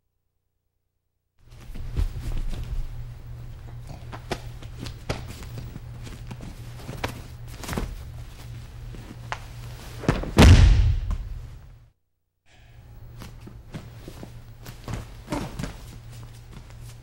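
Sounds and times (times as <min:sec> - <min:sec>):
feet shuffling on a mat: 0:01.4 - 0:10.4, 0:13.2 - 0:17.0
steady low hum: 0:01.4 - 0:11.8, 0:12.5 - 0:17.0
body thudding onto a mat: 0:10.0 - 0:11.4.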